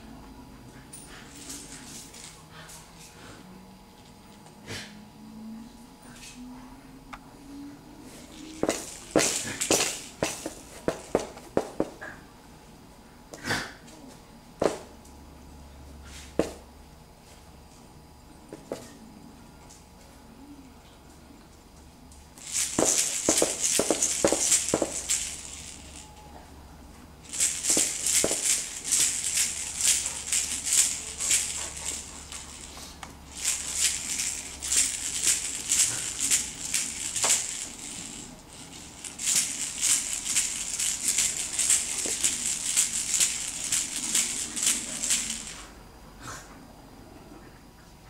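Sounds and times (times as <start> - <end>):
baby's toy rattle shaken: 8.1 - 12.0, 22.4 - 26.2, 27.2 - 45.7.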